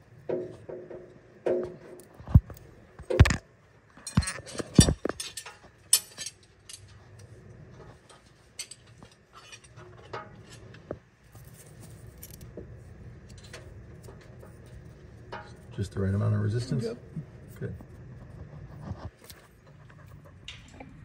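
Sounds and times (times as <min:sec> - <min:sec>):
metal tools clinking on engine: 0:04.0 - 0:07.3, 0:08.0 - 0:10.8.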